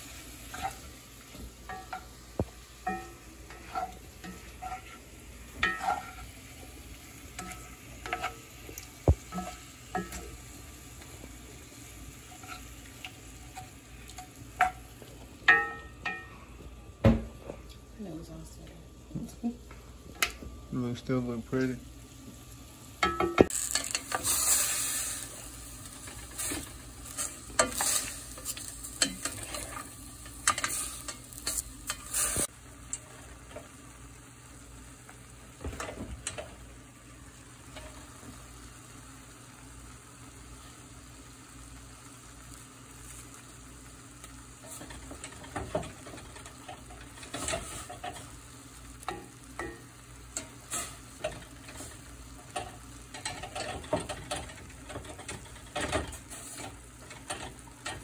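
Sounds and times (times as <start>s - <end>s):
meat and onion sizzling in a skillet: 0.0s - 18.2s, 18.9s - 58.0s
spatula scraping a pan: 0.1s - 1.0s, 2.8s - 8.6s, 9.3s - 10.4s, 12.2s - 14.8s, 23.5s - 32.5s, 44.6s - 48.3s, 49.0s - 58.0s.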